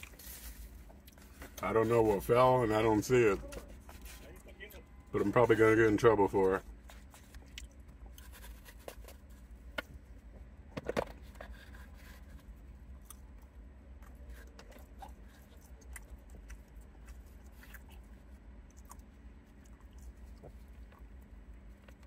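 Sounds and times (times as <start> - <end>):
man chewing food: 0.0 - 1.6, 6.7 - 10.5, 11.1 - 22.0
low steady rumble: 0.0 - 22.0.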